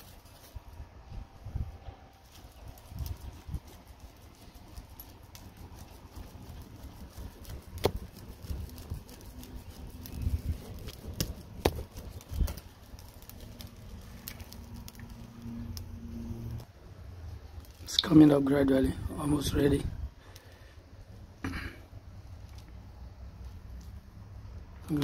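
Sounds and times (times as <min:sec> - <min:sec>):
hand fan flapping: 0:00.0 - 0:16.7.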